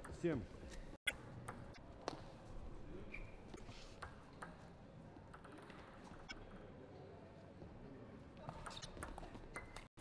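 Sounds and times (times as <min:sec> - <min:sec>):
faint hall noise: 0:00.2 - 0:09.9
table tennis balls bouncing: 0:01.1 - 0:02.3, 0:03.6 - 0:06.6, 0:08.5 - 0:10.0.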